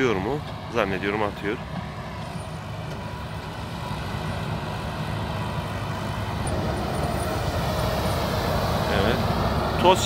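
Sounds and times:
tractor engine running: 0.0s - 10.0s
sprayer fan blowing: 3.1s - 10.0s.

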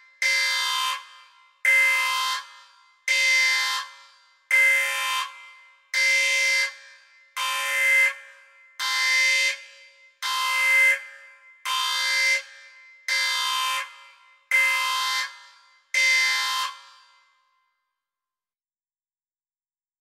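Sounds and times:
alarm-like horn blasts: 0.1s - 17.7s.

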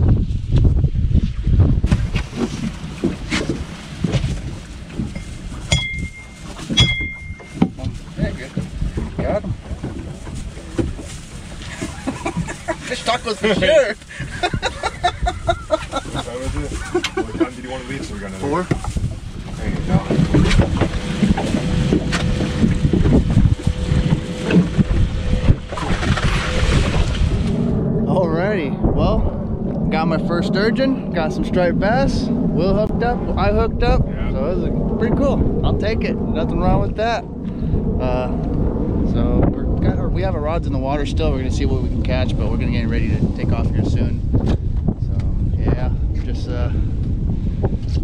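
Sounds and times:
wind rumble on microphone: 0.0s - 48.0s
thin steady hum: 4.6s - 8.4s
high beep: 5.7s - 7.6s.

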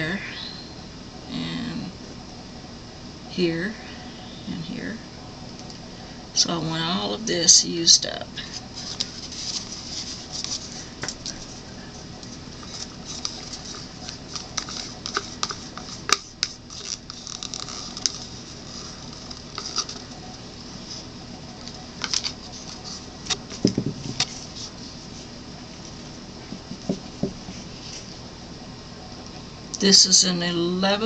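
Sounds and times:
gloved hands handling plastic cup: 12.2s - 20.1s.

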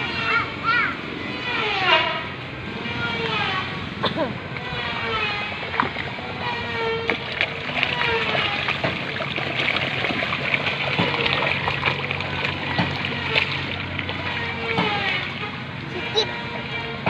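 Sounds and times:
fish splashing in water: 4.6s - 16.8s.

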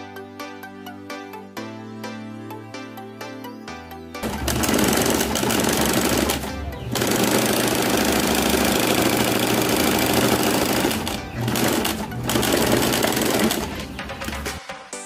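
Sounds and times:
electric sewing machine running: 4.2s - 14.6s.

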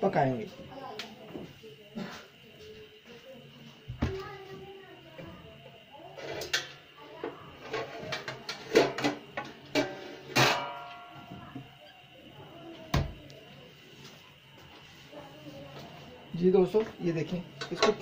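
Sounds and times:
metal pots and lids clanking: 7.6s - 10.9s.

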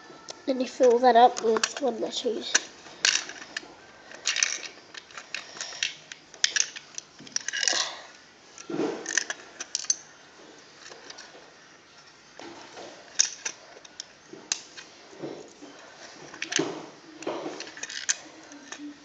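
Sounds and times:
rustling handling noises: 0.0s - 19.0s
plastic bricks clicking: 0.8s - 7.9s, 16.3s - 18.8s.

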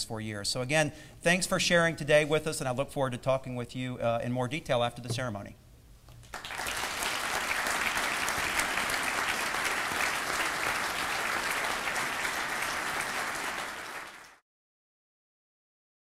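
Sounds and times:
audience applauding: 6.2s - 14.4s.

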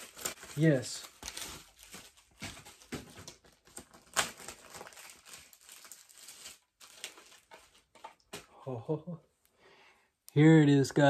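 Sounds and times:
packaging crinkling and rustling: 0.0s - 8.5s.

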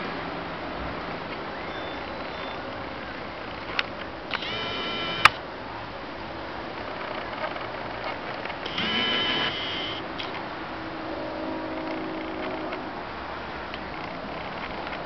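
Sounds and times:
outdoor background hiss: 0.0s - 15.0s
camcorder zoom motor whining: 1.6s - 2.6s, 4.3s - 5.4s, 8.7s - 10.1s.

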